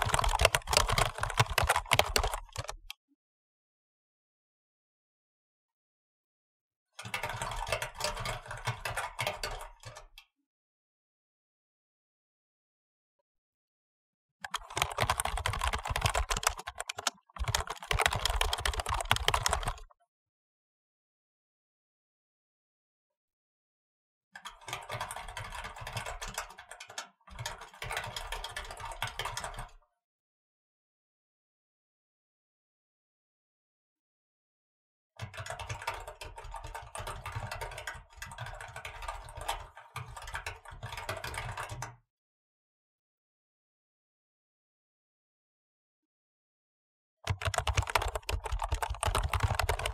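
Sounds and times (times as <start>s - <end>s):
mechanical keyboard typing: 0.0s - 2.9s, 14.4s - 19.9s, 47.3s - 49.9s.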